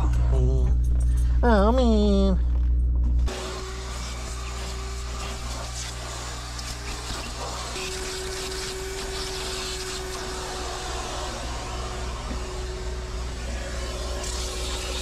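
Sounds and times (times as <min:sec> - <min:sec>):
steady low hum: 0:00.0 - 0:03.3
vacuum cleaner running: 0:03.3 - 0:15.0.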